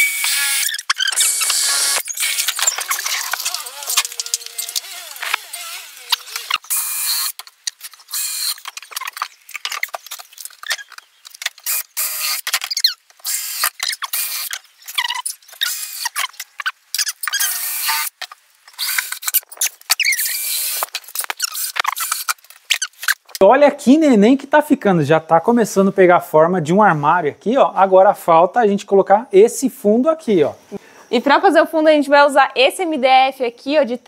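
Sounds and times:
cordless drill driving screws: 0.0 - 7.4, 20.0 - 20.9.

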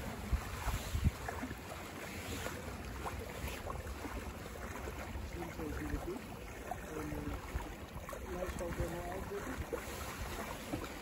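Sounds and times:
wind buffeting microphone: 0.0 - 1.6
water sloshing against boat hull: 0.0 - 11.0.

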